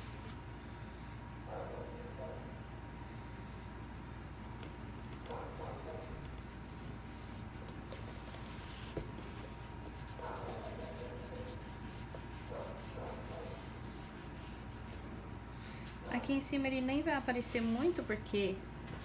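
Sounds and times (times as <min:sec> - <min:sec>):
cloth pad rubbing foam: 0:04.7 - 0:09.0, 0:09.8 - 0:15.1.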